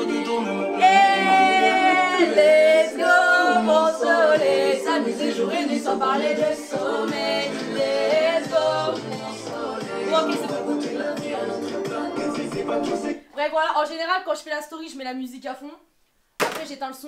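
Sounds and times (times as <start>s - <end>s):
song with sung vocals: 0.0s - 13.4s.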